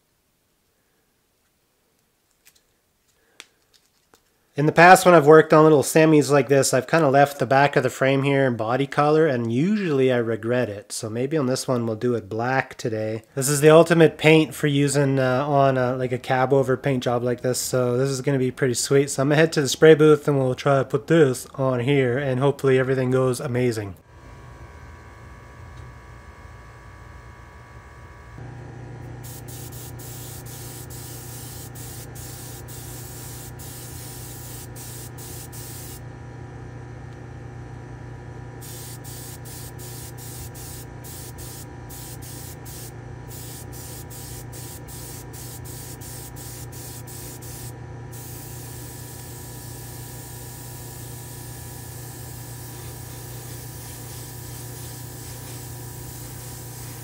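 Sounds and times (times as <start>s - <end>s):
motor hum: 24.0s - 57.0s
airbrush spraying hiss: 29.2s - 36.0s, 38.6s - 57.0s.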